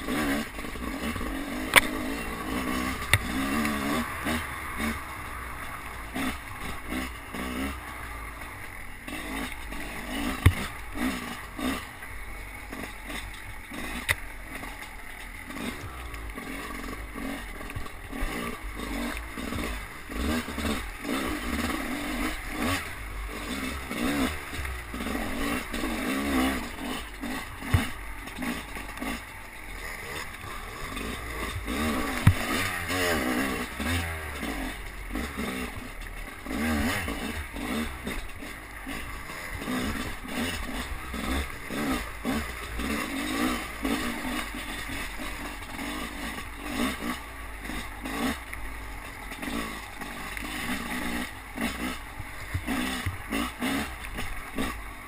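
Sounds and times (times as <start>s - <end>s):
motorcycle engine revving: 0.0s - 55.0s
bike knocking on ground: 31.5s - 32.8s.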